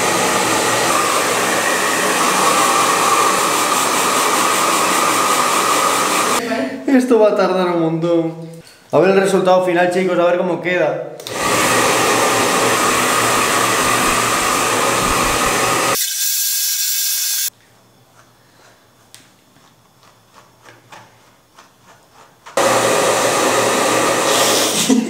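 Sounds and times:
hair dryer blowing: 0.0 - 6.4, 11.2 - 17.5, 22.6 - 25.0.

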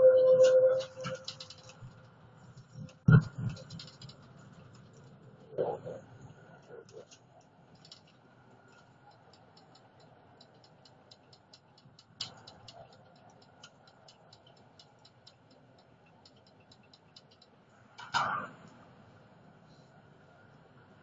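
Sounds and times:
tram running noise: 0.0 - 21.0
light irregular ticks and clicks: 0.8 - 21.0.

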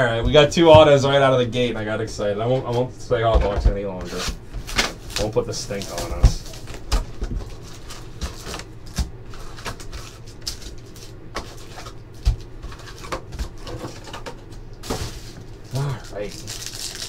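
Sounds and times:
cardboard and card packs rustling: 4.0 - 17.0.

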